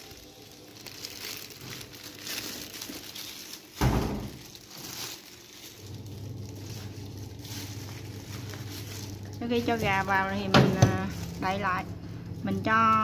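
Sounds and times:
plastic gloves rustling: 0.0 - 13.0
low steady hum: 4.3 - 13.0.

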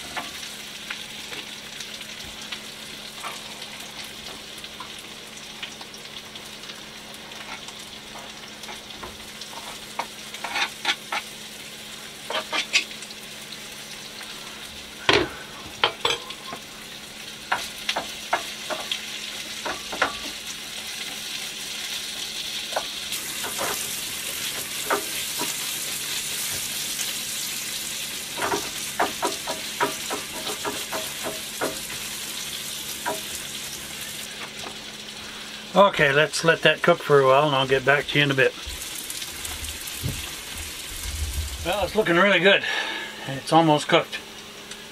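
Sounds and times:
vegetables sizzling in a frying pan: 0.0 - 44.9
spoon and spatula scraping pan: 10.4 - 11.3, 12.3 - 12.9.

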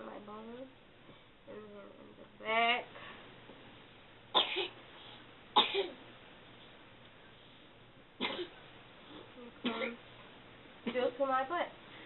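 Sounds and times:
woman coughing: 4.4 - 4.8, 5.6 - 6.0, 8.2 - 8.6, 9.6 - 10.0.

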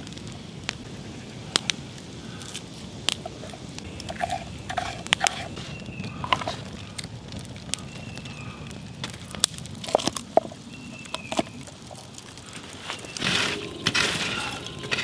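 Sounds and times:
scraping rustle: 3.2 - 6.8, 11.3 - 15.0.

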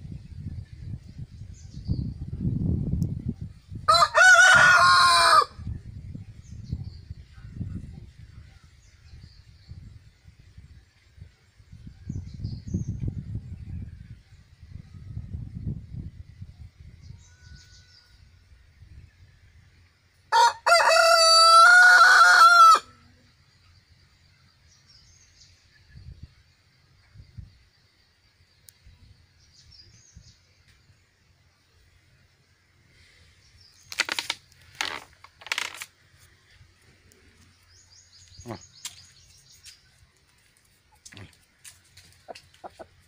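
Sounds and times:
rooster crowing: 3.9 - 5.6, 20.3 - 23.0
small bird chirping: 37.0 - 43.0.

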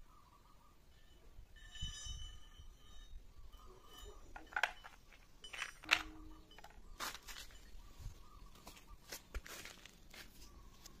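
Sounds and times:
metallic ringing tone: 0.0 - 8.4
metal pieces clinking: 4.0 - 7.6.

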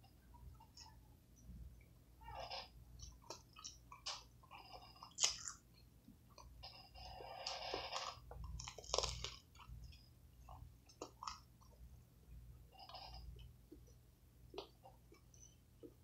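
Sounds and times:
person biting and chewing burger: 5.0 - 5.6, 7.3 - 9.7.

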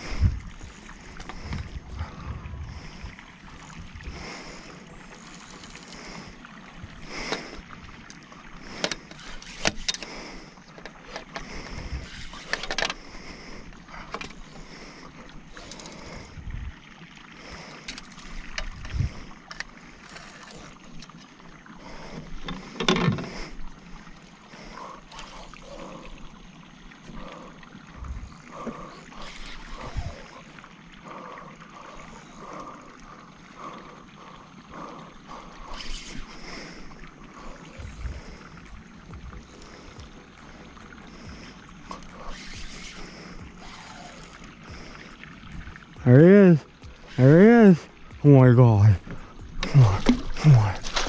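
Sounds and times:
water hissing around hull: 0.0 - 51.0
fishing gear knocking and rustling: 49.0 - 51.0.

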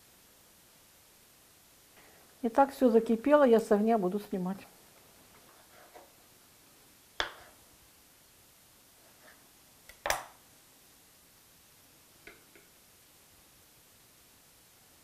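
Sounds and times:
knife tapping cutting board: 7.2 - 7.5.

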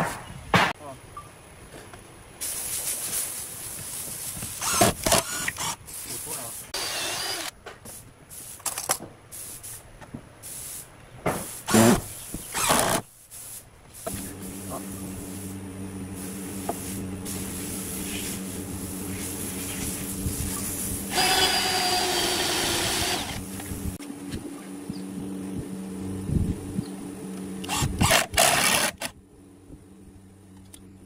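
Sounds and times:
impact driver driving screws: 4.6 - 5.8, 11.7 - 13.0, 21.1 - 23.4, 27.6 - 29.1
steady low hum: 14.0 - 31.0.

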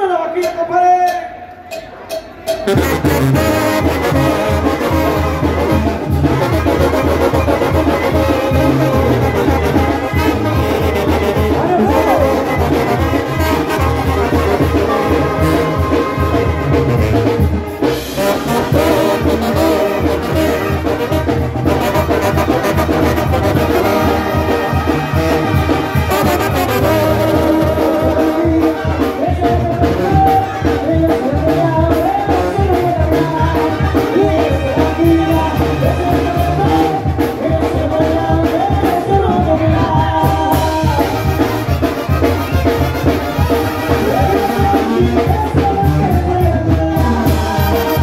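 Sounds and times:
brass band playing: 2.0 - 48.0.

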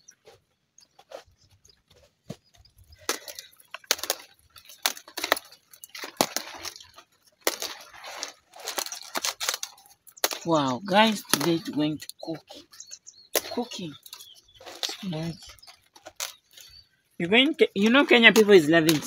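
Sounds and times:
leaves rustling: 2.6 - 19.0
leaves snapping off stalks: 3.0 - 12.3, 13.3 - 16.7, 17.8 - 19.0.

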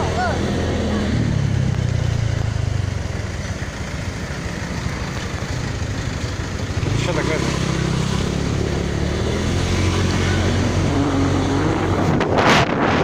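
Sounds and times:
motorbike engine running: 0.0 - 9.6
road and wind noise: 0.0 - 13.0.

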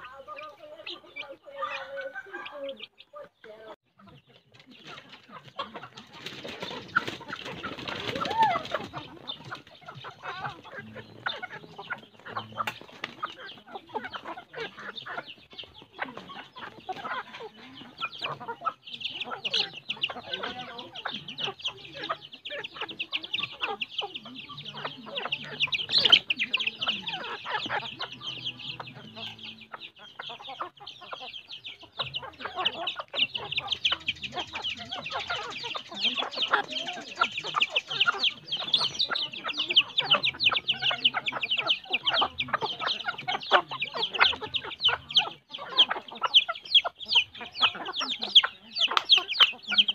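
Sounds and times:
chickens clucking: 0.0 - 49.9
chickens pecking feed: 0.0 - 49.9
wings flapping: 4.5 - 10.2.

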